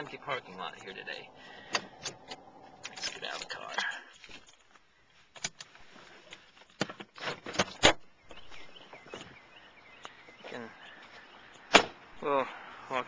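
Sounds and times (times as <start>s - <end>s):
soft rustling: 2.6s - 6.8s.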